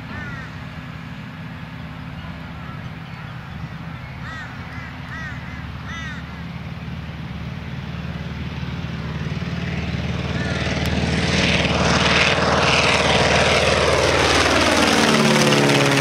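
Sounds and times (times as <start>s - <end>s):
radial aircraft engine drone: 0.0s - 16.0s
bird squawking: 0.1s - 0.6s, 2.6s - 6.4s.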